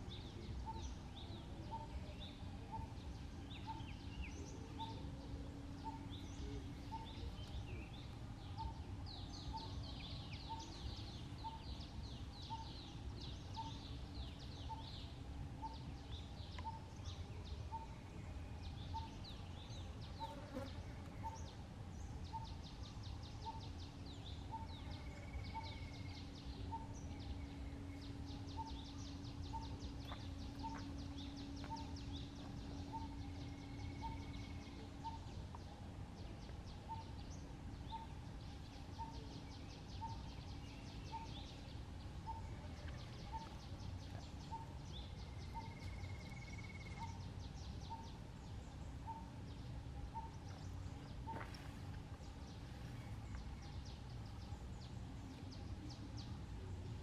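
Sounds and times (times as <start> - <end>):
low steady hum: 0.0 - 57.0.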